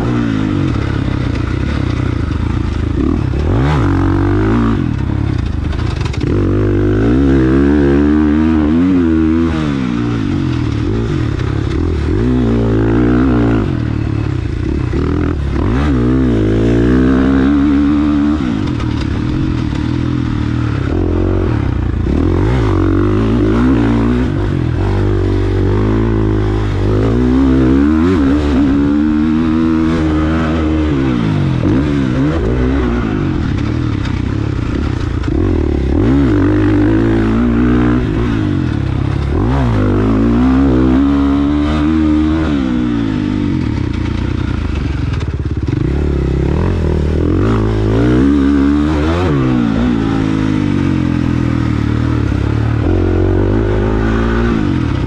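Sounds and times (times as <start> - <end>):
dirt bike engine revving: 0.0 - 55.0.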